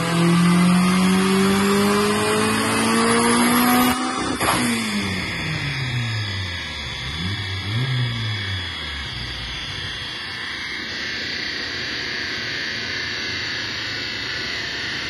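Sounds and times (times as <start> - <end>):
turbocharged engine winding down: 0.0 - 15.0.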